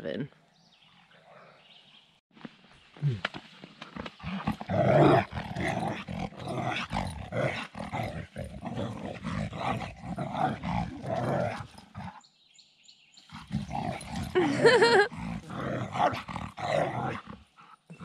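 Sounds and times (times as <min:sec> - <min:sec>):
dog play-growling: 0:03.9 - 0:12.2, 0:13.3 - 0:18.0.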